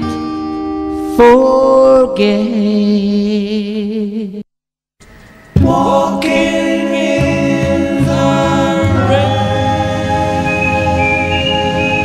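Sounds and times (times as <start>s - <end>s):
backing music: 5.0s - 12.0s.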